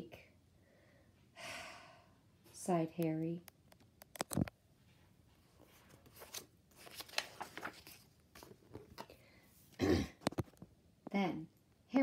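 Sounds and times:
book page turning: 4.0s - 4.5s, 5.6s - 9.2s, 10.2s - 10.6s.

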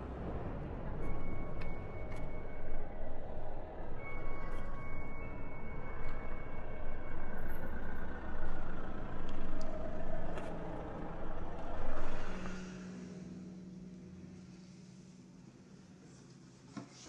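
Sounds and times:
street traffic: 0.0s - 16.0s.

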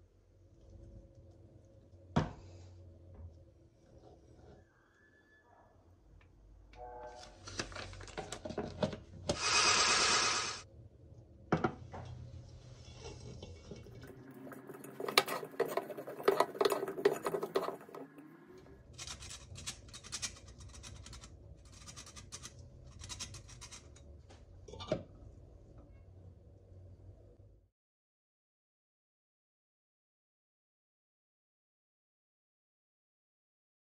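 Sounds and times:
flour sifter rasping: 9.4s - 10.6s
bowl and utensils clinking: 13.0s - 18.2s.

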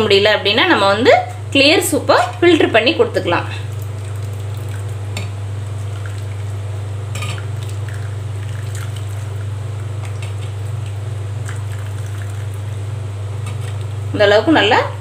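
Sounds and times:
steady low hum: 0.0s - 15.0s
soup pouring: 3.6s - 12.9s.

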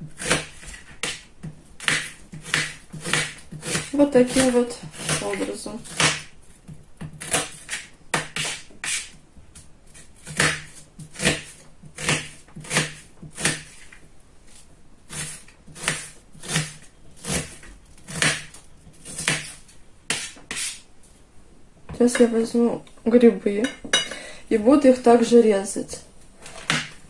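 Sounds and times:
knife chopping on plastic board: 0.1s - 6.3s, 7.0s - 9.1s, 10.2s - 13.9s, 15.1s - 20.7s, 26.6s - 27.0s.

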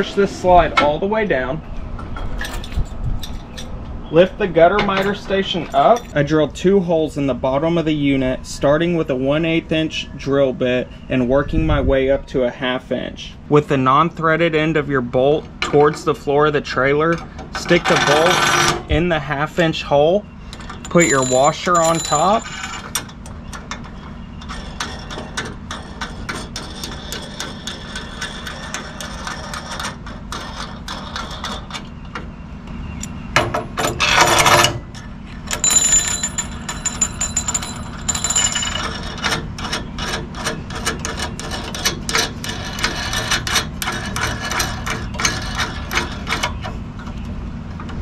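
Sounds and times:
nuts threading onto steel bolts: 16.8s - 18.8s, 20.5s - 32.2s, 33.0s - 47.2s.

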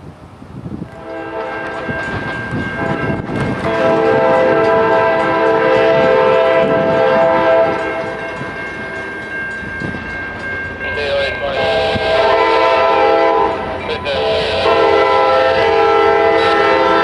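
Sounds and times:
locomotive air horn blast: 0.9s - 1.9s, 3.6s - 8.2s, 11.0s - 17.0s
crossing warning bell ringing: 1.0s - 17.0s.

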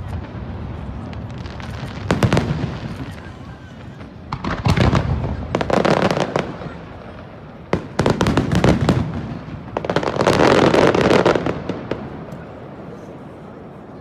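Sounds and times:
fireworks bangs and crackle: 0.0s - 14.0s.

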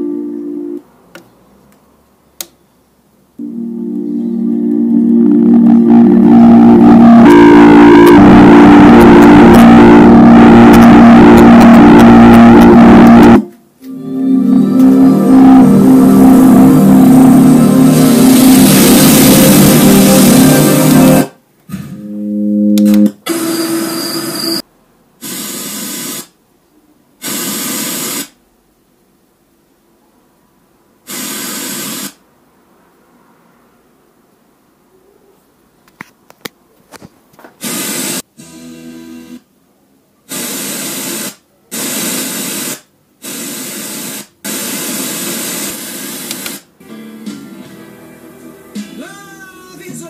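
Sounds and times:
distorted bass-heavy music: 3.4s - 21.3s, 21.9s - 23.2s
radio static hiss: 4.9s - 13.5s, 14.9s - 21.3s, 37.6s - 38.3s, 40.3s - 46.7s.

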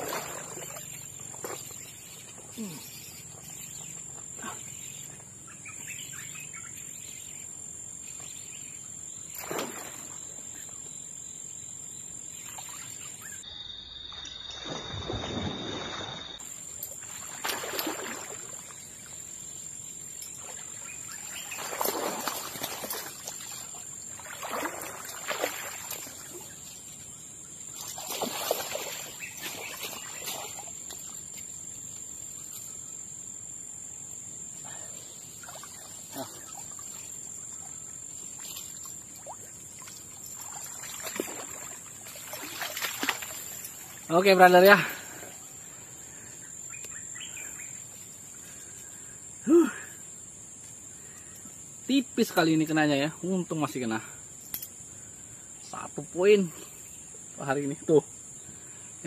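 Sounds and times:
fish thrashing and splashing: 21.3s - 26.4s, 27.9s - 30.7s, 38.6s - 44.0s.

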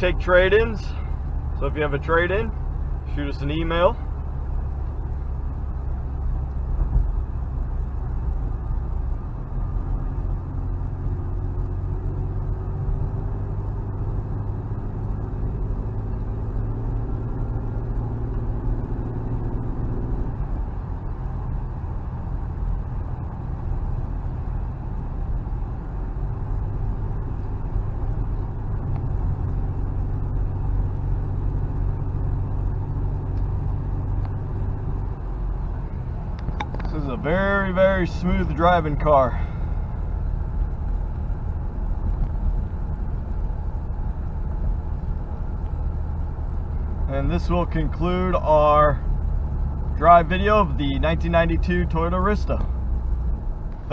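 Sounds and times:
car engine humming: 0.0s - 53.9s
road noise: 0.0s - 53.9s.

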